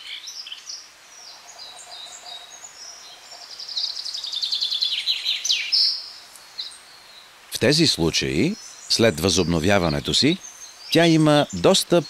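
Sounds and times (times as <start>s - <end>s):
rapid bird trill: 1.2s - 6.8s.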